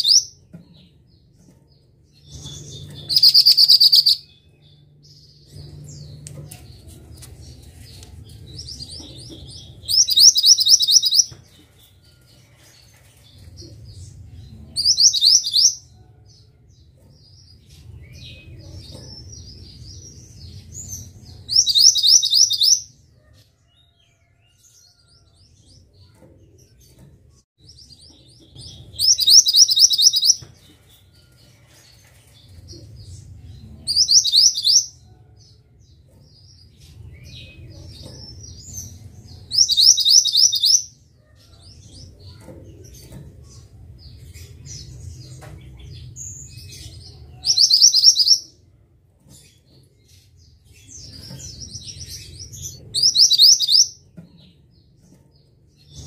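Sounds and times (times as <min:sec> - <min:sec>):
soft bird chirps: 0:00.0 - 0:08.1, 0:08.7 - 0:12.3, 0:28.4 - 0:30.9.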